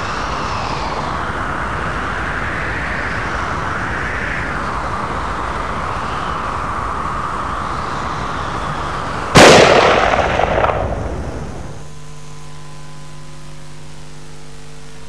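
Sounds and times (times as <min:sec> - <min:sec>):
rushing drone: 0:00.0 - 0:15.0
loud bang: 0:09.4 - 0:11.6.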